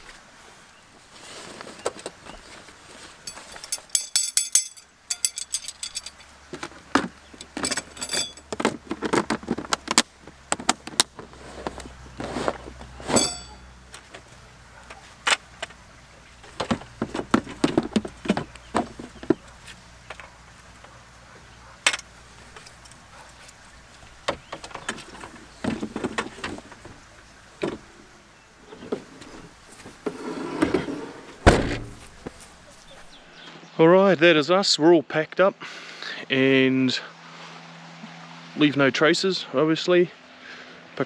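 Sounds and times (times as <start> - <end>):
metallic jangling: 3.2 - 6.4, 7.3 - 8.5, 13.1 - 13.7.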